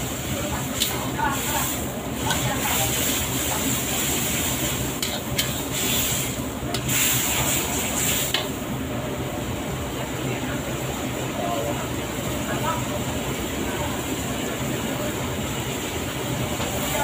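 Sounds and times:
food sizzling in a wok: 0.0 - 17.0.

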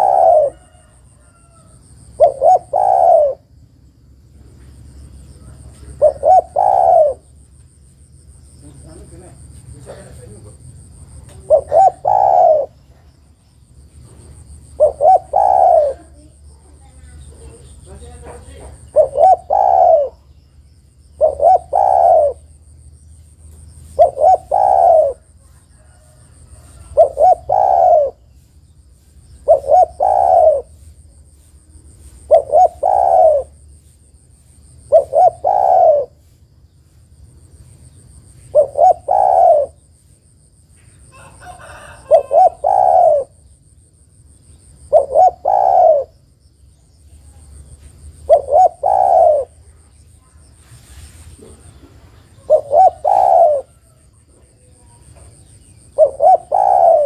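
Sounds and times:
dove cooing: 0.0 - 3.6, 5.4 - 7.4, 8.6 - 13.2, 14.0 - 22.6, 23.8 - 28.5, 29.4 - 31.0, 32.0 - 33.7, 34.8 - 36.3, 38.4 - 39.9, 41.1 - 43.5, 44.6 - 46.2, 47.6 - 57.0.

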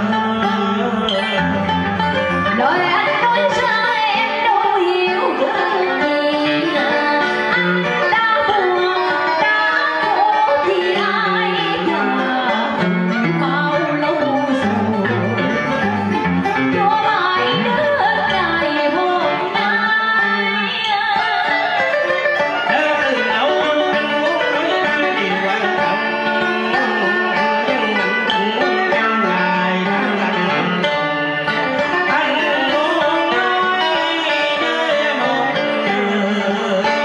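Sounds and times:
man singing into a microphone: 0.0 - 3.7, 11.6 - 16.1, 22.6 - 31.0, 31.7 - 37.0
plucked guitar: 0.0 - 37.0.

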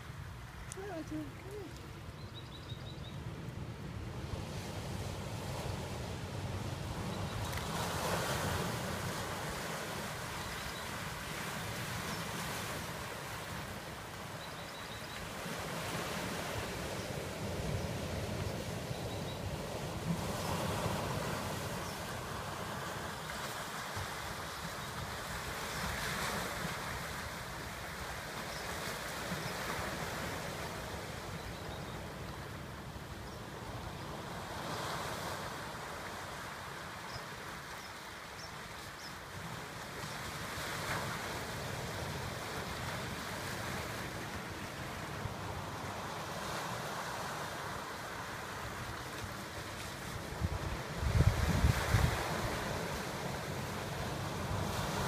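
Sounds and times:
ocean surf breaking over boulders: 3.2 - 55.0
wind rumble on microphone: 50.2 - 53.4.

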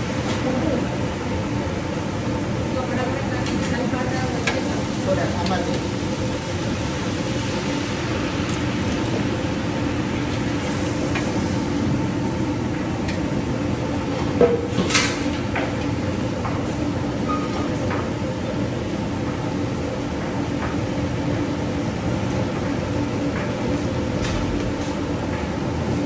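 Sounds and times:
kitchen range and ventilation rumble: 0.0 - 26.0.

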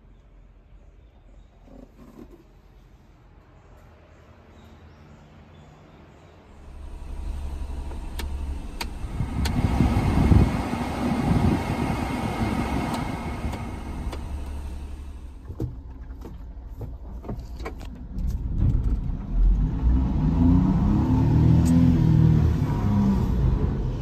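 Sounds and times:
low engine rumble: 0.0 - 24.0
engine idling: 6.5 - 18.6
heater blower rushing air: 6.7 - 15.4.

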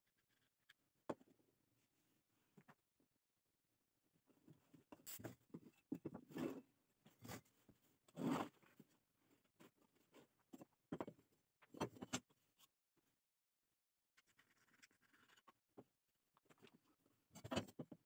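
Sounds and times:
rustles and scrapes: 4.5 - 10.8.

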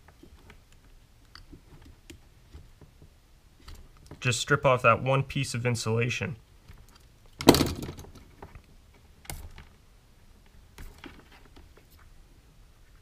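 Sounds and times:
faint clicks and rustles: 10.4 - 13.0.

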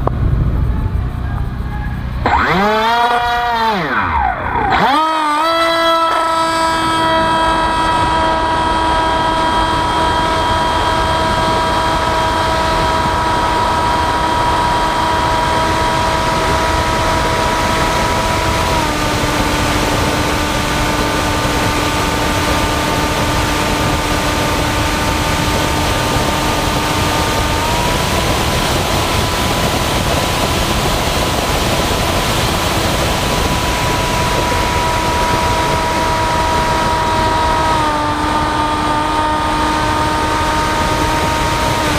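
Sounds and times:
motor and propeller whine: 0.0 - 41.9
wind noise: 0.0 - 41.9.

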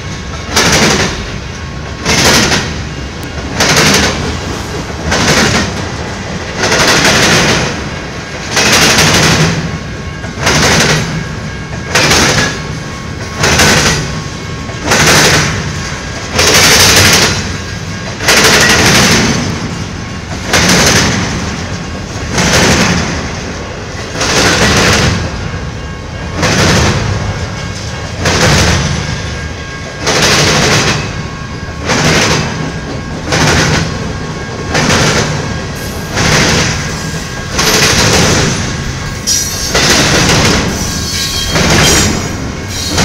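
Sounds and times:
freight train wheels clattering: 0.0 - 43.0.

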